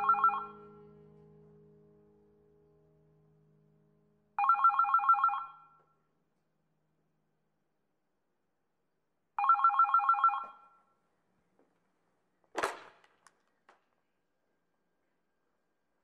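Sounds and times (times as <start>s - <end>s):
telephone ringing: 0.0s - 0.7s, 4.4s - 5.8s, 9.4s - 10.8s.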